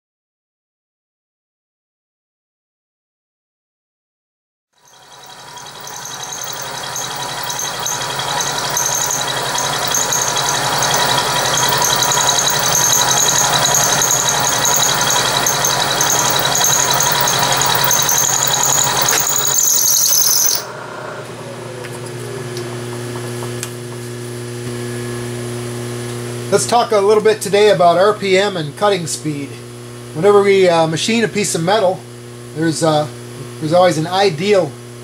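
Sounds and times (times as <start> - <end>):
high wavering squeal: 4.8 - 22.6
end mill cutting metal: 4.8 - 23.2
machine running hum: 4.8 - 26.6.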